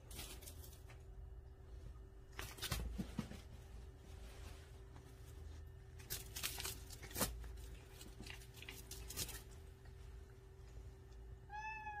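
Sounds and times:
soft rustles: 0:00.0 - 0:11.1
cat call: 0:11.5 - 0:12.0.

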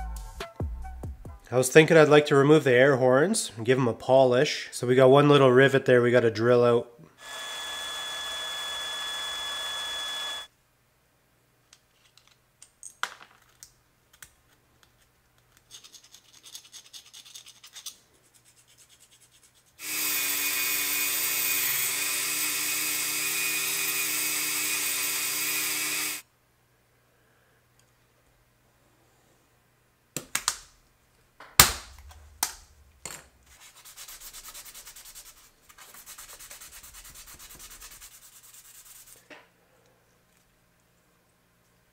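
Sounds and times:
rotary tool buffing wheel polishing: 0:07.2 - 0:10.5, 0:19.8 - 0:26.2
rotary tool drilling metal: 0:07.2 - 0:10.5, 0:19.8 - 0:26.2
metal parts clicking and scraping: 0:11.9 - 0:18.0.

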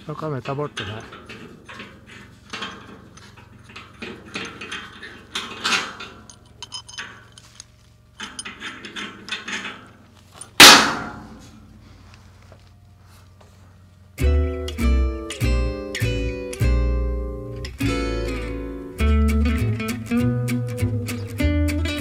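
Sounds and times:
steel parts clinking and rattling: 0:00.0 - 0:11.6
loud ringing metal clang: 0:10.5 - 0:11.7.

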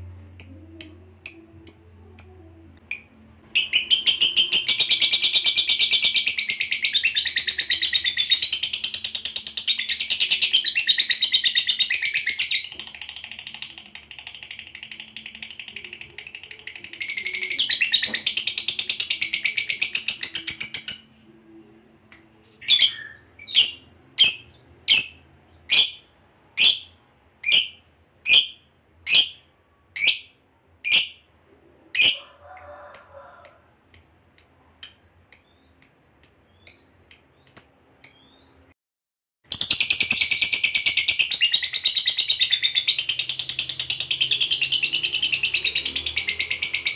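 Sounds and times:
lovebird chattering trill: 0:32.9 - 0:38.4.

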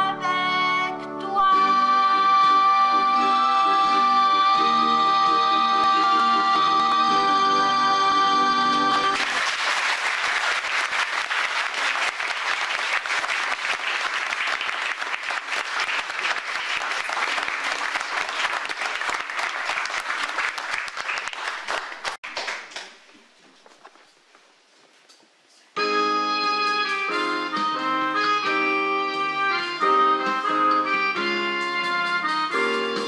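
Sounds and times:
audience applauding: 0:09.0 - 0:23.0.

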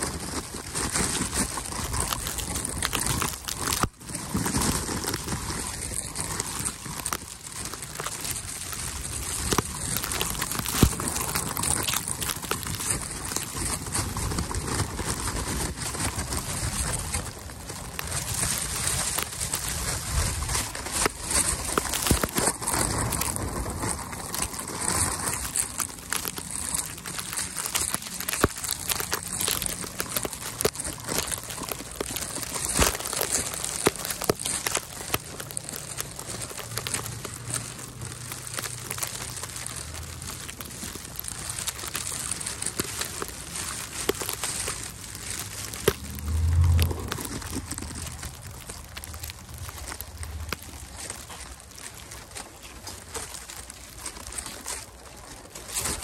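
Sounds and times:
footsteps crunching in snow: 0:00.0 - 0:56.0.

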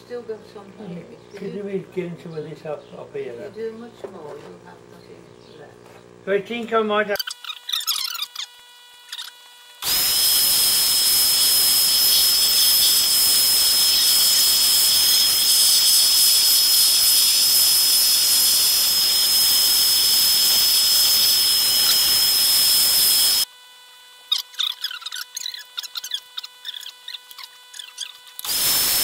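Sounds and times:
vacuum cleaner running: 0:07.9 - 0:24.6, 0:25.4 - 0:29.0.

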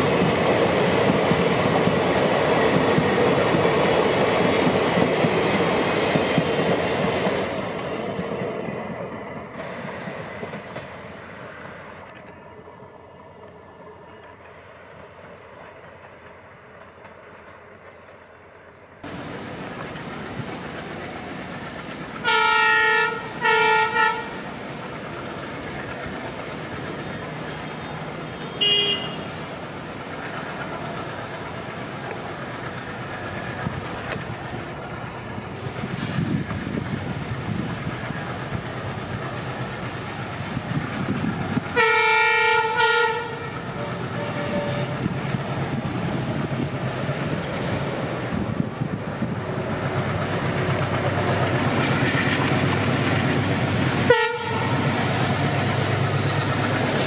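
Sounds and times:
train engine and rail rumble: 0:00.0 - 0:57.0
train horn blasts: 0:22.2 - 0:24.4, 0:28.4 - 0:29.4, 0:41.8 - 0:45.0, 0:54.1 - 0:54.8.

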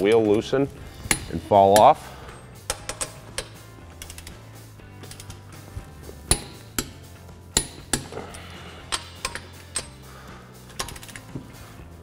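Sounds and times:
torque wrench clicks: 0:02.7 - 0:04.4, 0:07.6 - 0:08.2, 0:08.9 - 0:10.0, 0:10.7 - 0:11.3.

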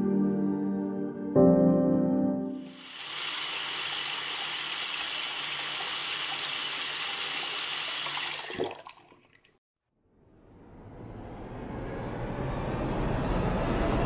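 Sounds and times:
tap water running into a sink: 0:02.6 - 0:09.6.

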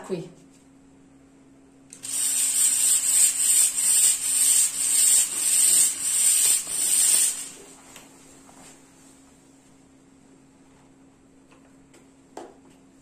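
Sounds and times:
fog machine hissing: 0:02.0 - 0:07.8.

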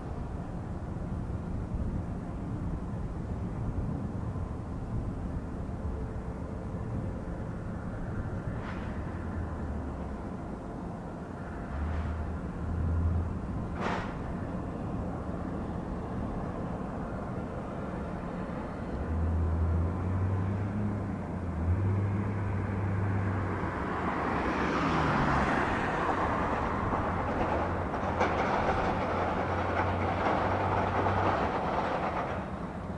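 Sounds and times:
ground vehicle engines humming: 0:00.0 - 0:32.9
vehicle rushing noise: 0:21.6 - 0:32.9.

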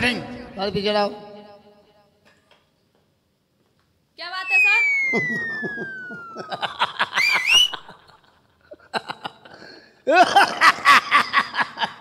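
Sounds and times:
man laughing: 0:05.1 - 0:12.0.

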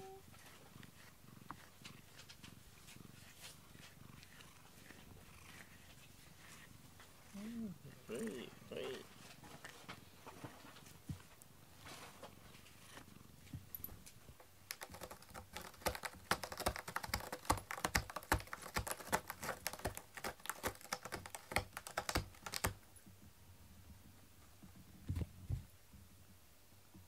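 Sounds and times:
cat scratching cardboard: 0:00.0 - 0:13.2, 0:14.3 - 0:22.8.

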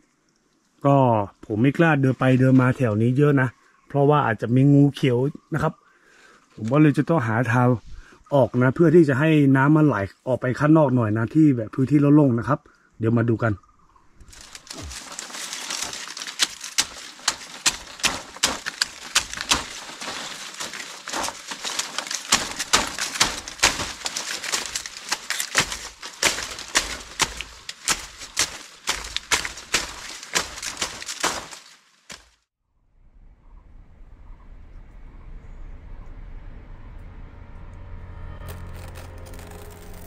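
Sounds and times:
crunching and snapping strikes: 0:14.2 - 0:32.4
rustling: 0:14.2 - 0:32.4.

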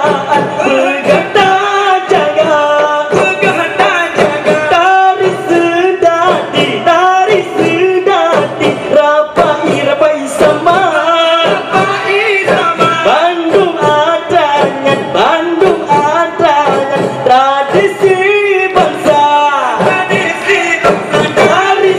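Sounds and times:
frame drum strikes: 0:00.0 - 0:21.9.

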